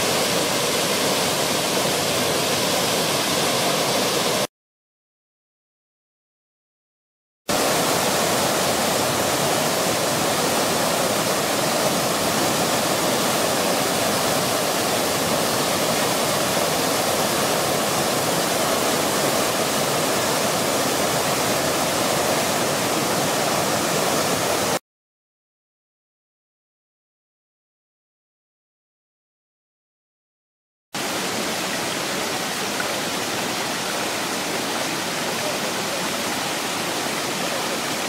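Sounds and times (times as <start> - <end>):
water jets splashing: 0.0 - 4.5, 7.5 - 24.8, 31.0 - 38.0
fountain water pouring into basin: 7.5 - 24.1.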